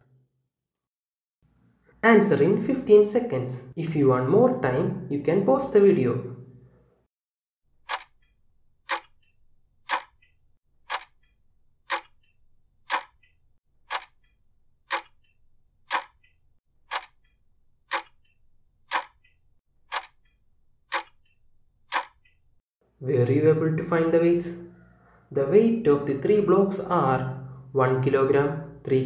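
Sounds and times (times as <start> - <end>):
clock ticking: 7.8 - 22.6.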